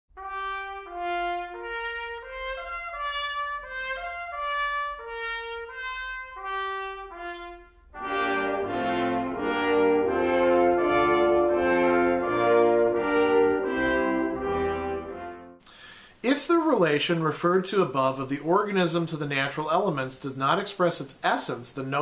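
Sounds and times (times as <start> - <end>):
ensemble playing chords: 0.2 - 15.6
single melody line of held notes: 0.2 - 15.6.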